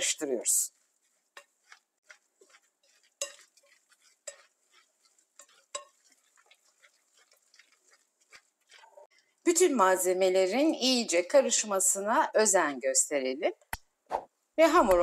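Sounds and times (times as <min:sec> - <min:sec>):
whisk scraping glass bowl: 0:00.6 - 0:09.4.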